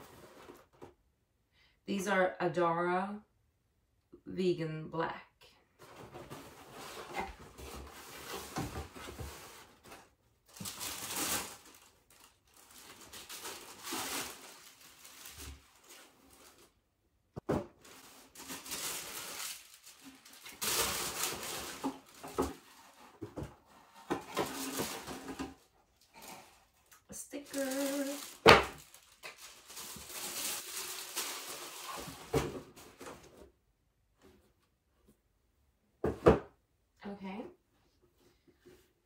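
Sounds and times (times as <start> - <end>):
tissue paper rustling and crinkling: 0.0 - 0.9, 5.8 - 16.8, 17.7 - 33.4.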